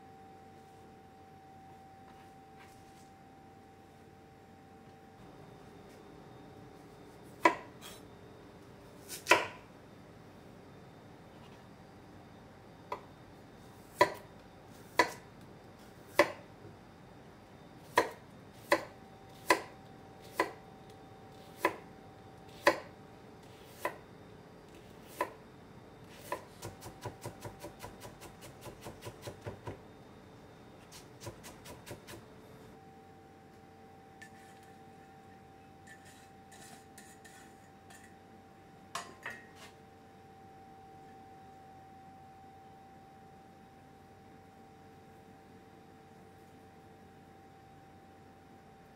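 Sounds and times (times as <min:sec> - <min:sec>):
knife chopping on wooden board: 0:07.4 - 0:08.0, 0:09.1 - 0:09.6, 0:22.5 - 0:22.9.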